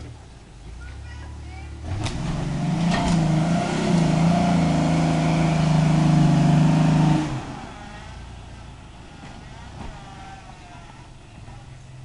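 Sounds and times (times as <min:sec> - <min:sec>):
truck engine revving: 0:01.7 - 0:10.3.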